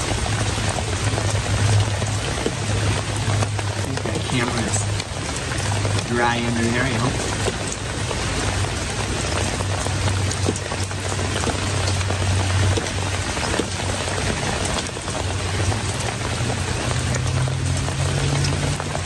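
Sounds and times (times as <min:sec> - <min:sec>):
raindrops ticking close by: 0:00.0 - 0:19.0
steady rain falling: 0:00.0 - 0:19.0.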